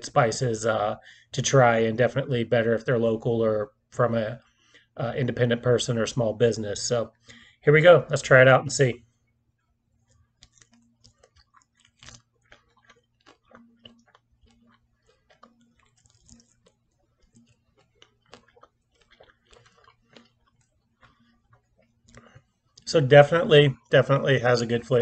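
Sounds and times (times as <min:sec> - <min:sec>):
chewing and biting chicken wing: 0:10.0 - 0:22.9.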